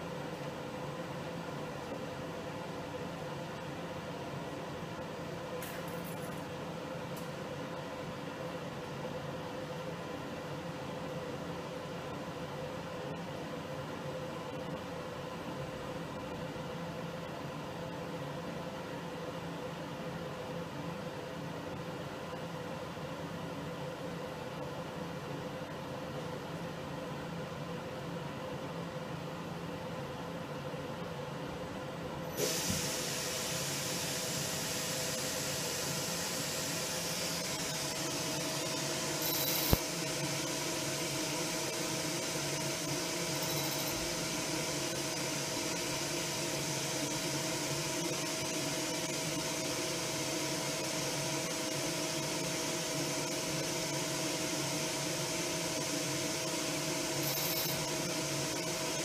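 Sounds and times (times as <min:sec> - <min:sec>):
hiss: 0:32.4 - 0:37.4.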